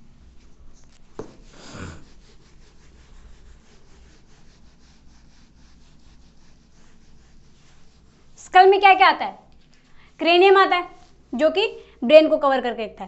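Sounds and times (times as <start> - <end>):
eraser rubbing on whiteboard: 0.3 - 9.8
tap: 1.2 - 1.4.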